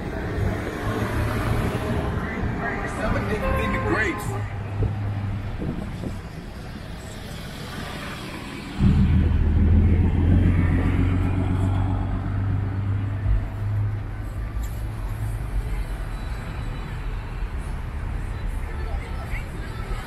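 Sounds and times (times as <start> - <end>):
road traffic: 0.0 - 20.0
vehicle engine running loudly: 8.8 - 14.4.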